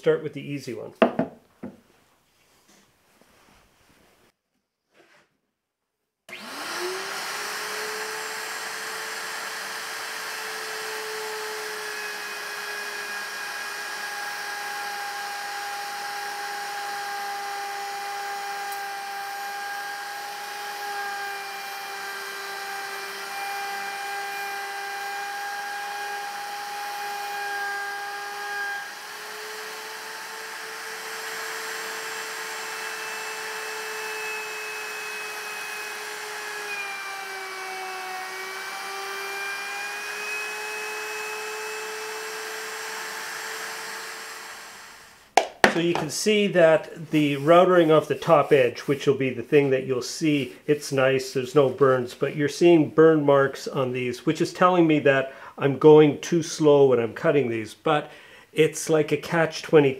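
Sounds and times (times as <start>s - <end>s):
router whining: 6.3s - 46.1s.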